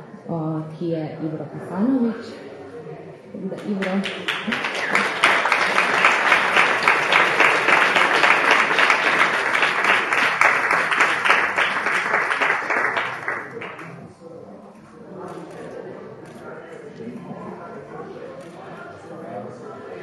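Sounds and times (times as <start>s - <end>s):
audience applauding: 3.6s - 14.0s.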